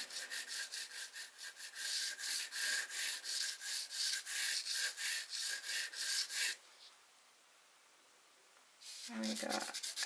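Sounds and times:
pencil scratching on canvas: 0:00.0 - 0:06.6, 0:08.8 - 0:10.0.

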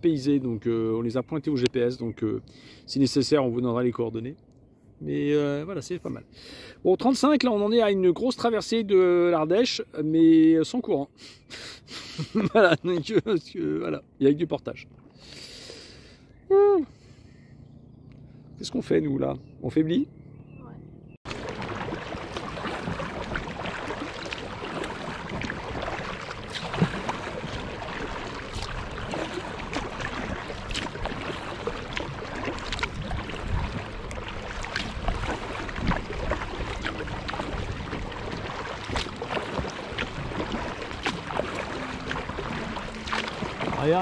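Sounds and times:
water lapping against kayak: 0:20.6 - 0:44.0.

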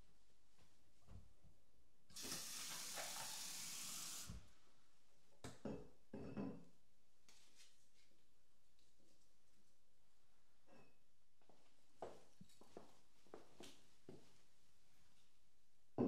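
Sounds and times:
water running: 0:02.1 - 0:04.5.

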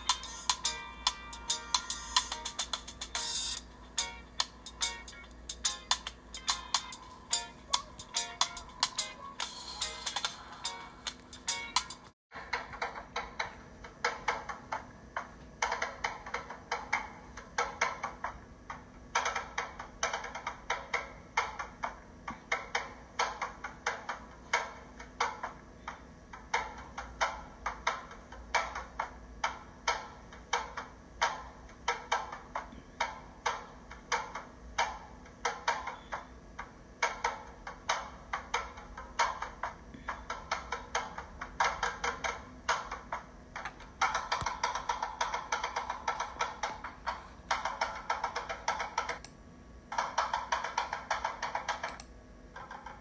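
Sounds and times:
clicking wood block percussion: 0:15.6 - 0:53.0.

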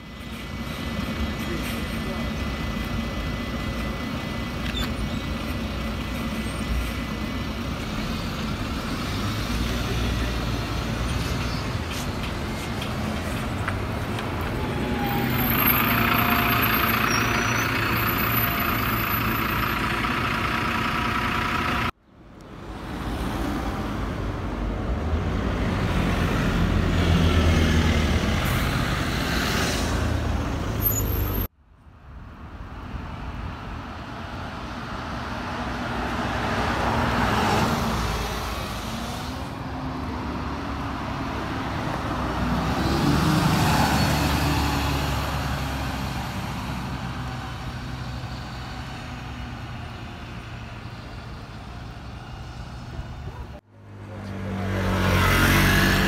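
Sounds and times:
bus engine running: 0:00.0 - 0:22.0
bus driving past: 0:00.0 - 0:31.5, 0:32.5 - 0:56.0.

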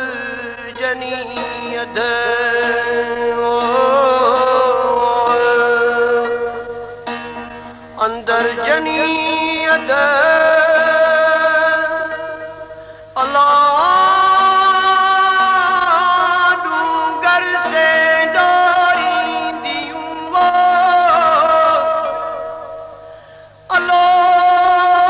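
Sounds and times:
plucked lute drone: 0:00.0 - 0:12.9
man singing long notes: 0:00.0 - 0:25.0.

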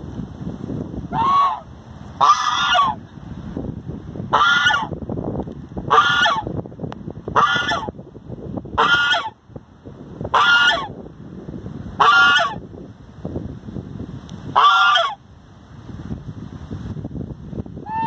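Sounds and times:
goose honking: 0:01.1 - 0:01.6, 0:02.2 - 0:03.0, 0:05.9 - 0:06.4, 0:08.8 - 0:09.3, 0:10.3 - 0:10.9, 0:12.0 - 0:12.6, 0:14.6 - 0:15.2.

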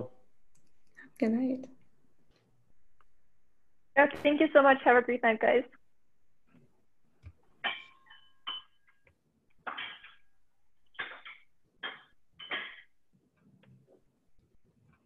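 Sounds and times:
faint clicks and taps: 0:00.5 - 0:01.0, 0:06.4 - 0:07.7.

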